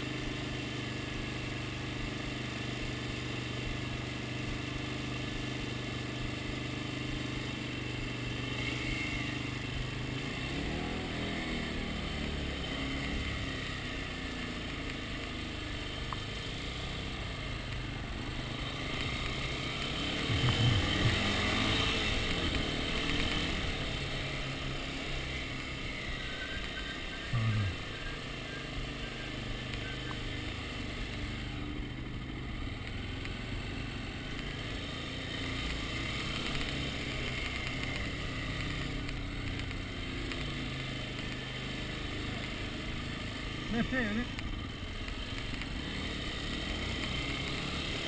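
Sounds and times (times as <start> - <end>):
dirt bike engine revving: 2.7 - 48.0.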